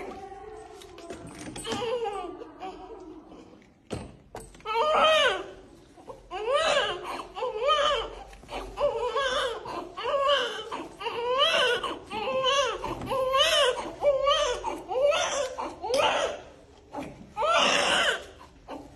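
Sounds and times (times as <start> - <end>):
baby crying: 4.7 - 16.6, 17.4 - 18.9.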